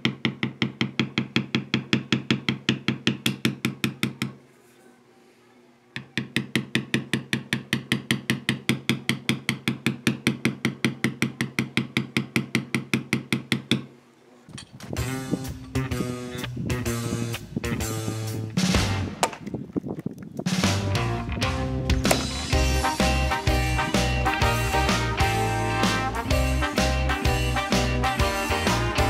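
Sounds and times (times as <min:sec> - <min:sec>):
mallet tapping leather tool: 0:00.0 - 0:04.4, 0:06.0 - 0:13.9
guitar music: 0:20.8 - 0:29.0.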